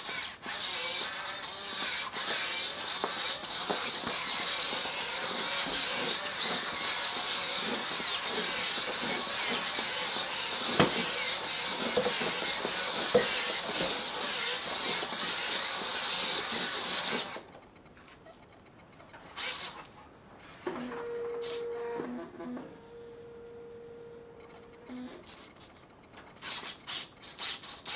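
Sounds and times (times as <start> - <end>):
servo motors buzzing and whining: 0.0 - 17.4, 19.3 - 19.8.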